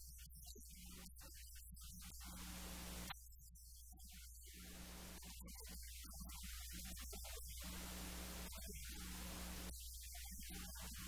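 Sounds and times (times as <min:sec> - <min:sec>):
static hiss: 0:02.0 - 0:03.1, 0:04.5 - 0:05.4, 0:06.7 - 0:11.0.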